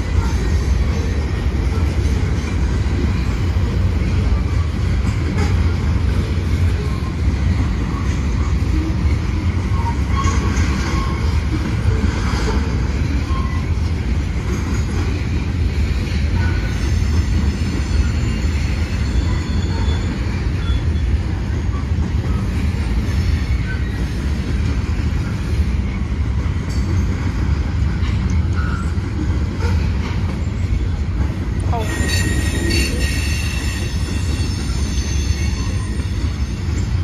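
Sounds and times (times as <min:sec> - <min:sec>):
steel wheels rumbling on rails: 0:00.0 - 0:37.0
thin wheel squeals: 0:31.9 - 0:36.8.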